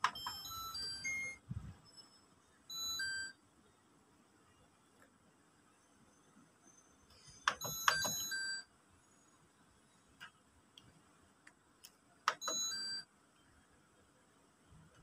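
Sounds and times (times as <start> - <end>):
electronic beeps: 0.0 - 3.4, 6.1 - 9.4.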